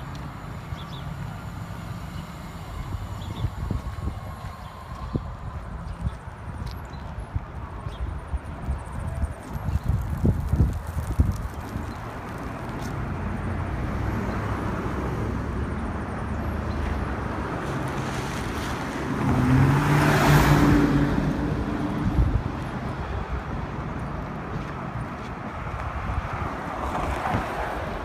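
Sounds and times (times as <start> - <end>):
wind buffeting microphone: 1.5 - 13.9, 20.8 - 28.0
car driving past: 18.0 - 22.0.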